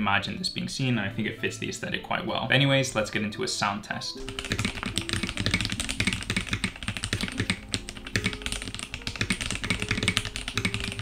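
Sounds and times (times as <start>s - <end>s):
fast typing on mechanical keyboard: 4.2s - 11.0s.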